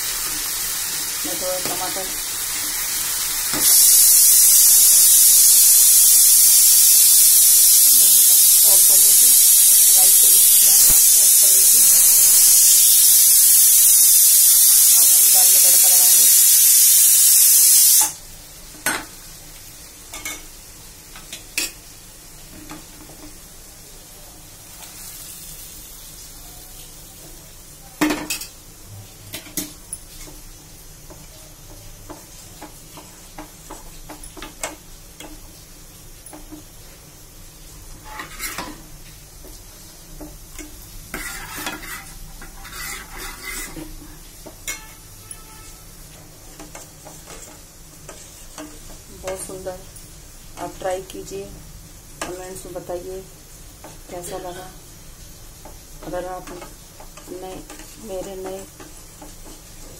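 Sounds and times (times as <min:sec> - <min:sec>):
low sizzle: 0:00.0 - 0:59.9
loud hiss: 0:02.6 - 0:18.2
metal ladle scraping in pots: 0:38.0 - 0:38.8, 0:41.1 - 0:44.0.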